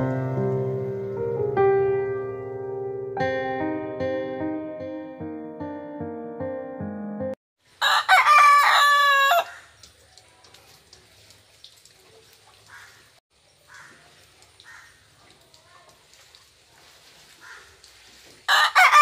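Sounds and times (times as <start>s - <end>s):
background music: 0.0s - 7.4s
rooster crowing: 7.8s - 9.7s, 18.5s - 19.0s.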